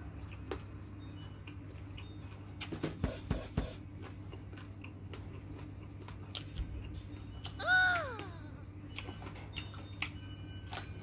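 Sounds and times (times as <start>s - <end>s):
person chewing: 1.4s - 2.8s, 3.8s - 11.0s.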